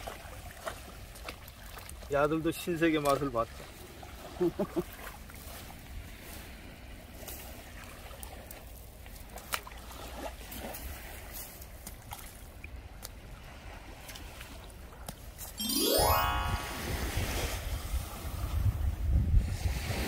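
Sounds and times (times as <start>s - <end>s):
water lapping at shoreline: 0.0s - 15.5s
wind rumble on microphone: 16.8s - 20.0s.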